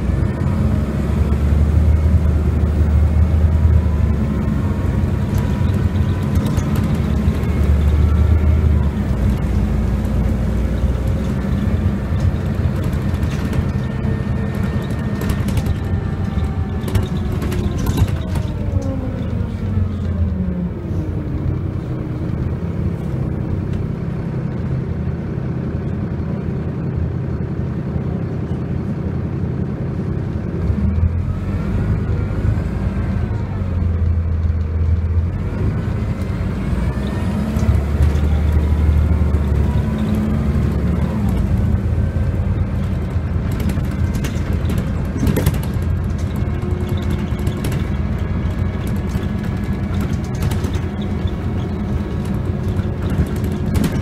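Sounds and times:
bus diesel engine rumble: 0:00.0 - 0:54.0
engine whine: 0:00.0 - 0:54.0
sharp clicks and rattles: 0:04.5 - 0:19.3, 0:37.4 - 0:54.0.

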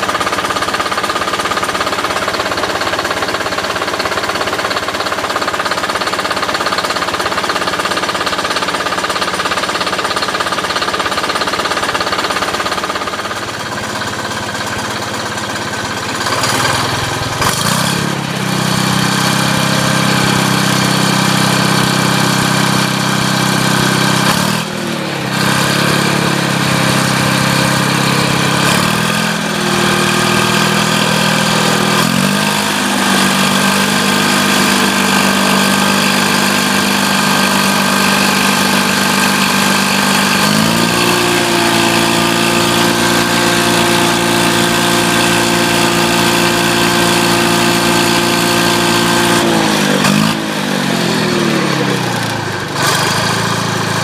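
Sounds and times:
diesel engine clattering: 0:00.0 - 0:54.0.

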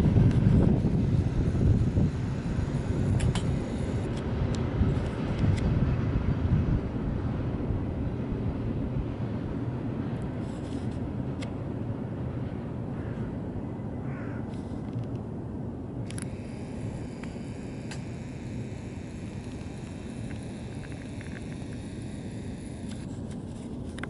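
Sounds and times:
traffic rumble: 0:00.0 - 0:24.0
faint clicks: 0:16.1 - 0:16.4, 0:17.1 - 0:24.0.

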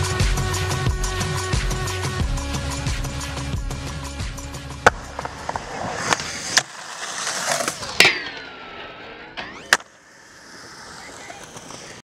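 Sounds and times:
skateboard rolling on concrete: 0:02.9 - 0:12.0
skateboard clacks: 0:04.8 - 0:08.8, 0:09.5 - 0:12.0
skateboard grinding metal rail: 0:04.8 - 0:12.0.

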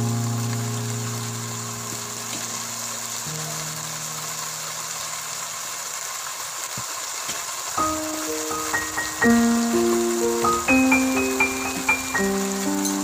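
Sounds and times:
food sizzling in a wok: 0:00.0 - 0:13.0
background music: 0:07.8 - 0:13.0.

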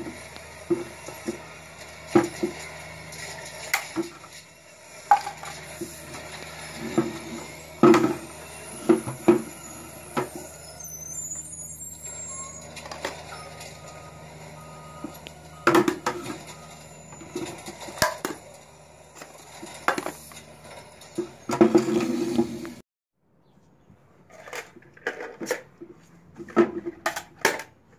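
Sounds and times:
metal and plastic objects clacking: 0:00.0 - 0:09.5, 0:17.2 - 0:18.6, 0:19.2 - 0:22.1, 0:24.3 - 0:27.8.

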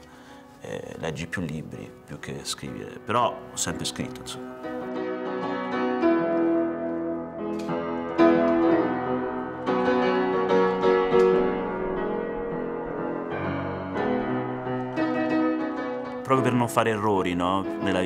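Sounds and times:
piano chords: 0:00.0 - 0:18.0.

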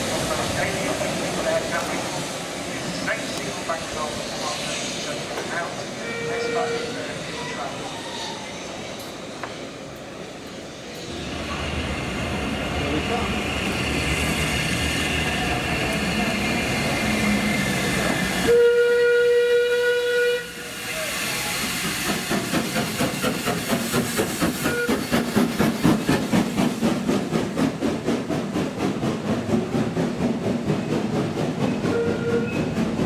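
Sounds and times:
train rhythmic clatter: 0:00.0 - 0:06.9, 0:09.0 - 0:33.0
steam whistle blast: 0:18.4 - 0:21.5, 0:24.6 - 0:25.1, 0:31.9 - 0:32.6.

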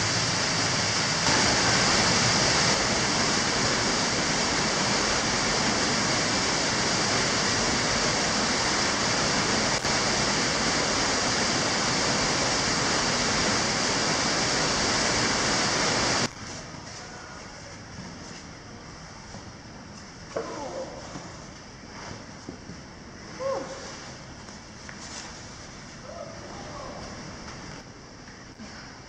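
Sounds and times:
waterfall pouring and splashing: 0:00.0 - 0:16.3.

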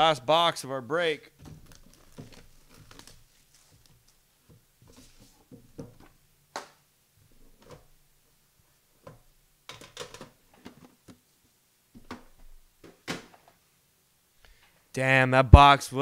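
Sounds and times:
cardboard and wrapper rustling: 0:01.4 - 0:06.2.

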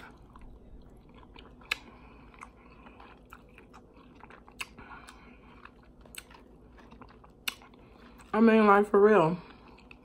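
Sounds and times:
person chewing: 0:00.0 - 0:08.3, 0:09.4 - 0:10.0
tortilla chips crunching: 0:00.0 - 0:08.3.

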